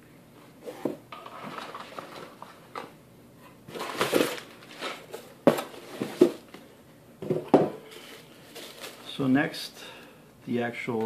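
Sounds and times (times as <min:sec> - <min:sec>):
paper and packaging rustling: 0:01.2 - 0:02.9, 0:03.7 - 0:06.4, 0:07.9 - 0:09.3.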